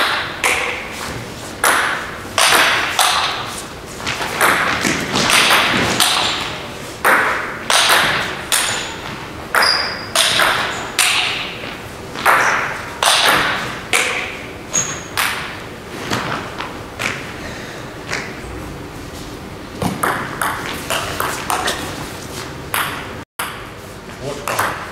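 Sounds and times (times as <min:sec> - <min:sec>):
table tennis ball clicking on paddles: 0:04.1 - 0:15.5, 0:24.4 - 0:24.9.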